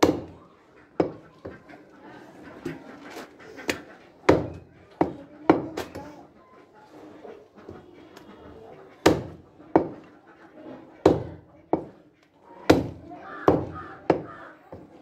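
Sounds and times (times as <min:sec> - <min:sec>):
cleaver chopping meat on wood: 0:00.0 - 0:00.4, 0:03.7 - 0:05.8, 0:09.0 - 0:09.9, 0:11.0 - 0:12.0, 0:12.7 - 0:14.9.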